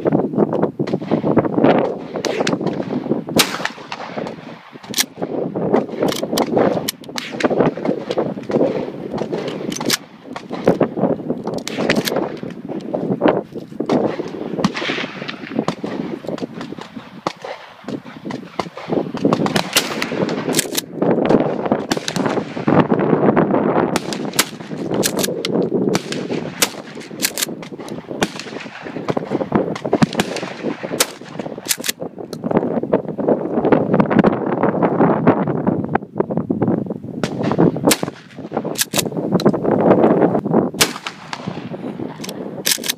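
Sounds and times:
wind on microphone: 0:00.0 - 0:42.9
gunshots: 0:00.8 - 0:12.7, 0:13.9 - 0:23.0, 0:23.9 - 0:32.0, 0:37.2 - 0:39.1, 0:40.8 - 0:42.9.

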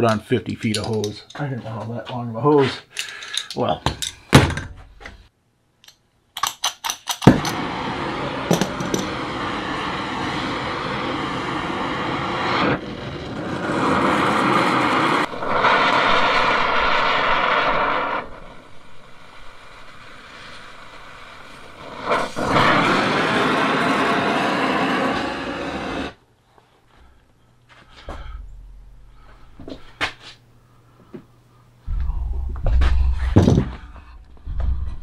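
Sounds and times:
torch lighting pop: 0:07.1 - 0:07.8, 0:08.4 - 0:10.3
torch flame hissing: 0:07.2 - 0:26.2.

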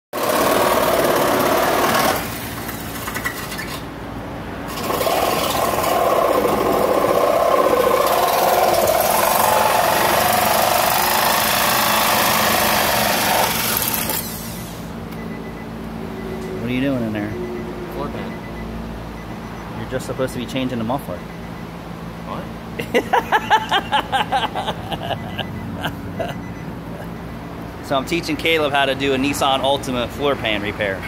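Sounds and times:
reciprocating saw cutting sheet metal: 0:04.7 - 0:14.8.

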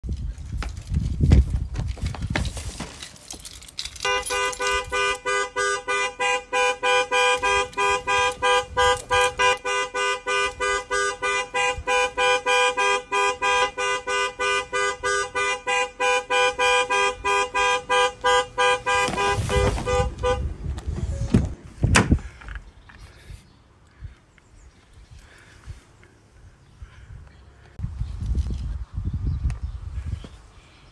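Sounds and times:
two-tone car horn blasts: 0:04.0 - 0:20.6.

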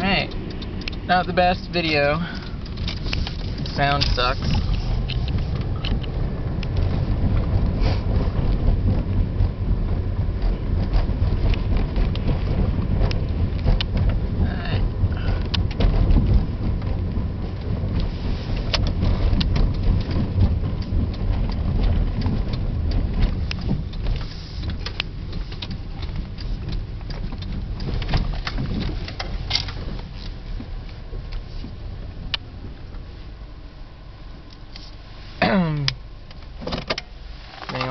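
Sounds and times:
car engine and road rumble: 0:00.0 - 0:37.9
sharp clicks: 0:00.2 - 0:06.9.

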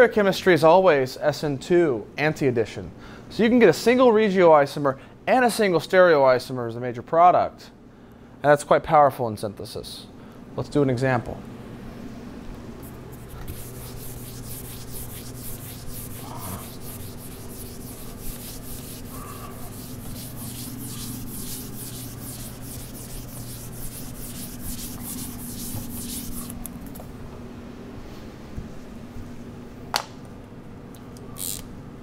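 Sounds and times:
eraser wiping whiteboard: 0:12.8 - 0:26.7.

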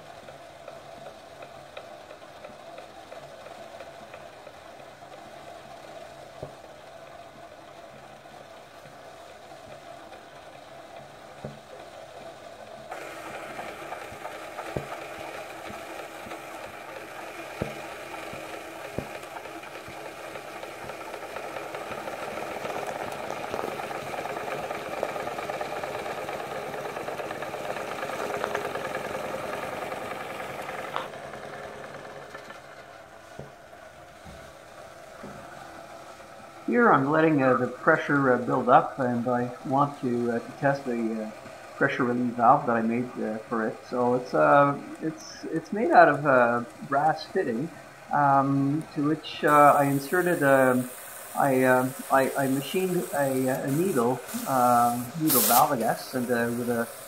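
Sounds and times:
steam engine running: 0:00.0 - 0:57.0.

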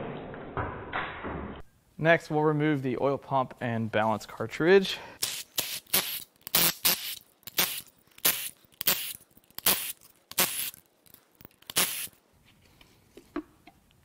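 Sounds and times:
cordless power tool bursts: 0:05.2 - 0:10.8, 0:11.7 - 0:12.1.

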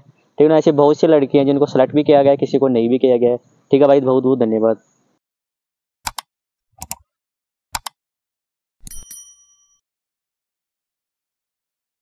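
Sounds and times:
mouse clicks: 0:06.0 - 0:07.1, 0:07.8 - 0:08.0
short bell ding: 0:08.8 - 0:09.8.

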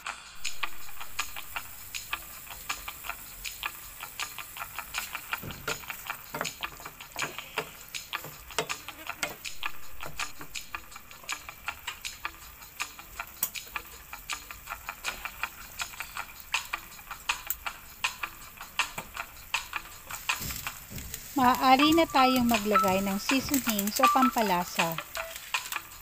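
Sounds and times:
squid sizzling and popping in pan: 0:00.0 - 0:26.0
wooden spatula stirring: 0:04.8 - 0:10.6, 0:20.1 - 0:25.8.

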